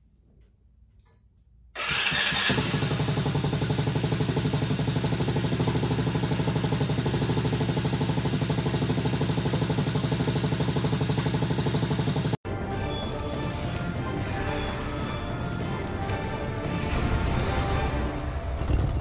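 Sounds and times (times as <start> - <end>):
small engine idling: 1.8 - 12.4.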